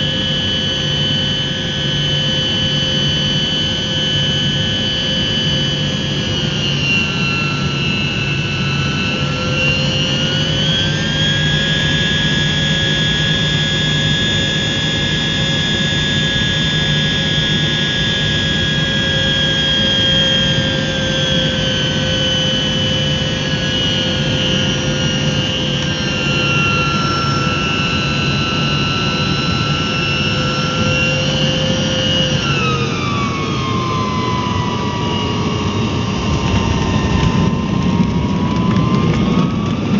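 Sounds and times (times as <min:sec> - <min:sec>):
jet engines rumbling and whining: 0:00.0 - 0:39.9.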